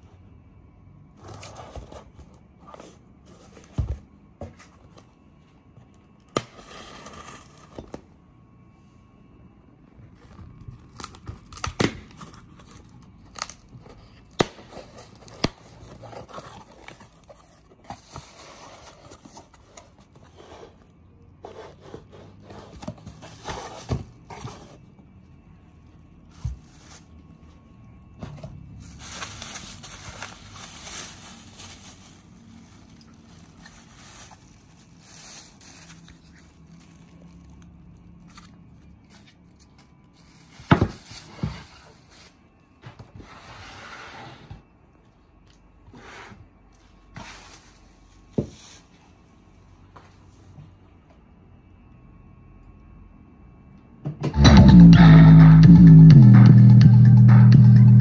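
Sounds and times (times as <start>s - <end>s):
plastic wrap crinkling: 26.2s - 27.3s, 28.8s - 41.3s.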